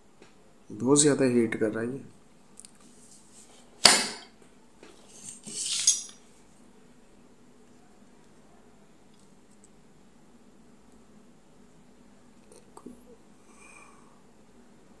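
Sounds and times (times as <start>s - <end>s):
rattling scrape: 5.1s - 6.1s.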